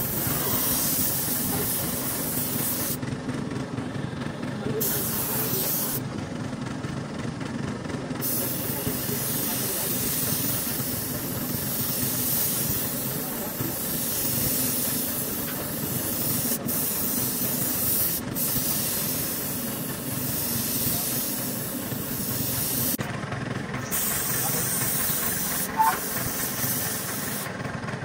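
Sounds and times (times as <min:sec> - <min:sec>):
steady hissing noise: 0:00.0 - 0:03.0, 0:08.2 - 0:23.0.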